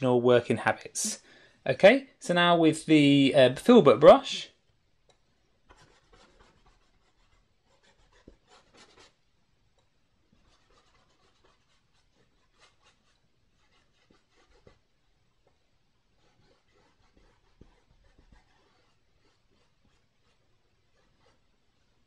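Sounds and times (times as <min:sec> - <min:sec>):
brush scratching on canvas: 0:05.6 - 0:09.2, 0:10.3 - 0:14.9, 0:16.1 - 0:21.7.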